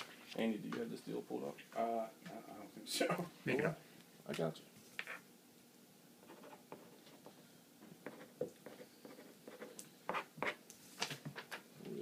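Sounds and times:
pen scratching on paper: 0:06.2 - 0:07.3, 0:08.0 - 0:10.6.

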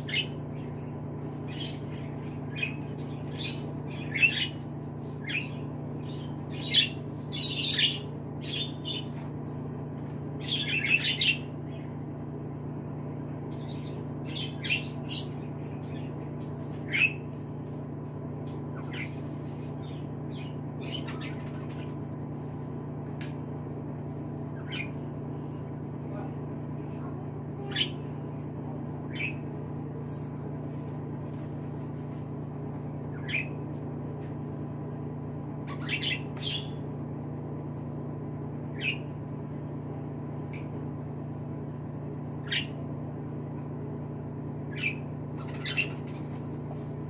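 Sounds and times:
steady low hum: 0:00.0 - 0:47.0
budgerigars chirping: 0:05.2 - 0:09.1, 0:35.7 - 0:36.8, 0:44.7 - 0:46.2.

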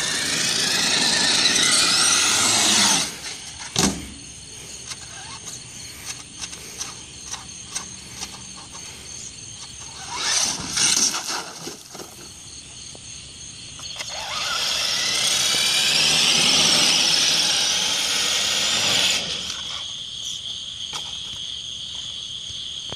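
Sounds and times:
electric motor whining: 0:00.0 - 0:03.7, 0:09.8 - 0:11.5, 0:14.0 - 0:19.8
crickets chirping: 0:00.0 - 0:22.9.

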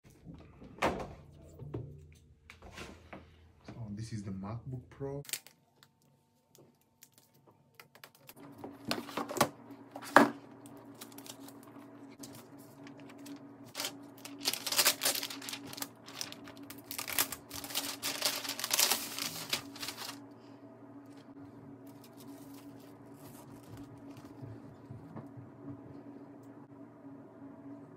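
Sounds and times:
packaging crinkling and rustling: 0:05.3 - 0:20.2.

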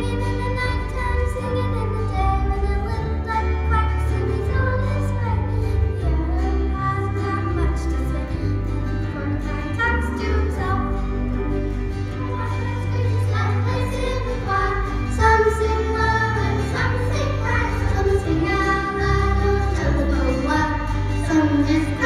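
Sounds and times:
instrumental accompaniment with bass: 0:00.0 - 0:22.0
girls choir singing: 0:12.2 - 0:22.0.

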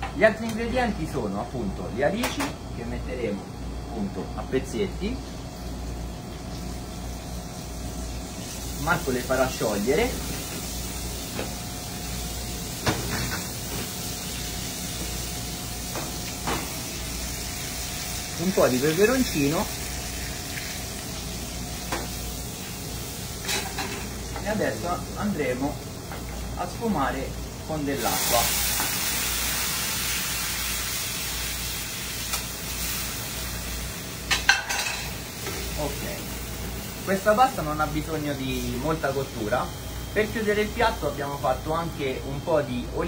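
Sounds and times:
gas burner hiss: 0:05.0 - 0:42.4
water sizzling in hot pan: 0:06.4 - 0:25.7, 0:27.7 - 0:39.0.

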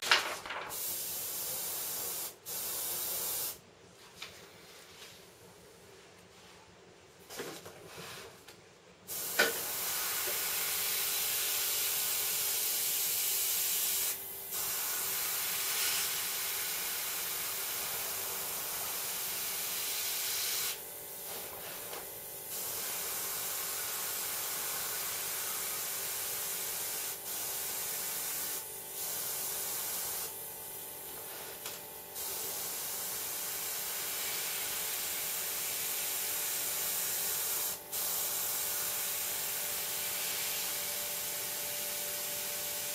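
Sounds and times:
airbrush hissing: 0:22.5 - 0:30.3.

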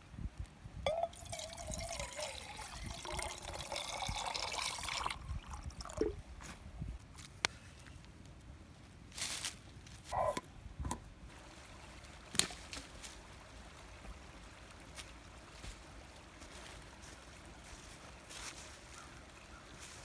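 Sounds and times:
faint steady hiss: 0:00.0 - 0:20.0
leaves rustling: 0:06.4 - 0:10.4, 0:11.0 - 0:20.0
dry sticks cracking: 0:12.3 - 0:12.9.

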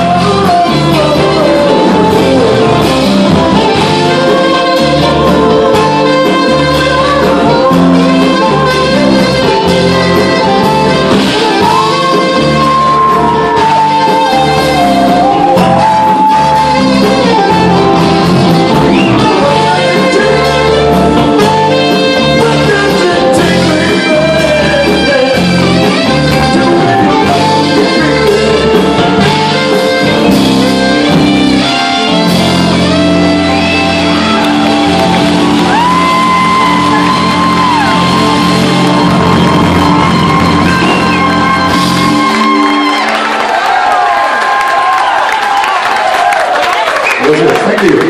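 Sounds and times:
lead vocal: 0:00.0 - 0:29.6
live band playing soul-rock song: 0:00.0 - 0:47.3.

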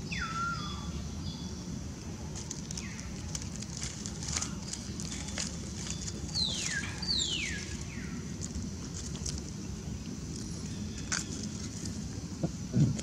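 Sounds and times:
low background rumble: 0:00.0 - 0:13.0
dry leaves crackling: 0:02.2 - 0:12.4.

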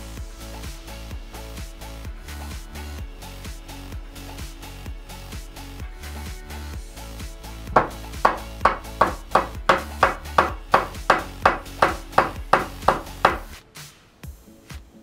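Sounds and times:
hammer driving nails into wood: 0:07.8 - 0:13.6.

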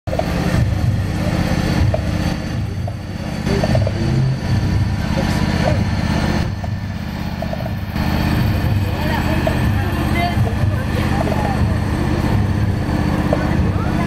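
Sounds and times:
small lawn tractor engine running: 0:00.1 - 0:14.0.

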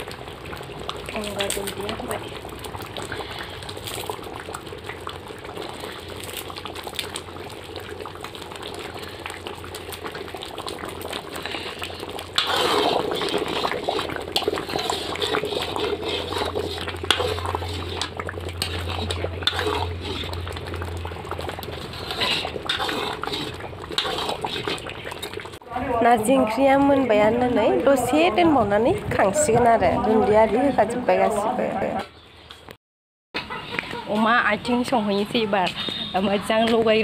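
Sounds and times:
broth bubbling at a boil: 0:00.0 - 0:31.5, 0:33.7 - 0:37.0
wooden spoon stirring: 0:10.0 - 0:25.6.

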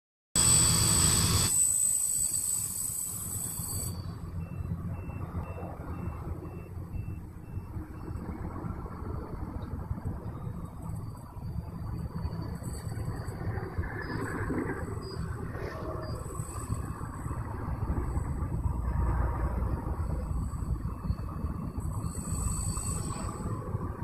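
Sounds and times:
faint short beeps: 0:00.4 - 0:08.2, 0:13.8 - 0:17.1
low outdoor rumble: 0:00.4 - 0:24.0.

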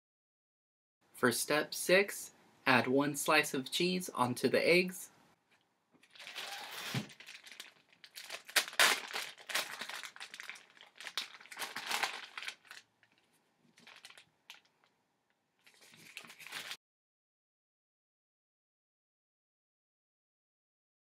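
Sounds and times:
plastic package crinkling: 0:06.0 - 0:14.9, 0:15.6 - 0:16.8.

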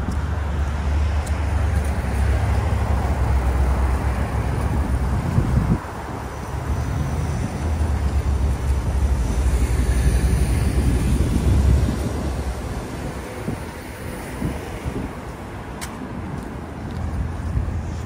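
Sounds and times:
passing vehicles rumbling: 0:00.0 - 0:18.0.

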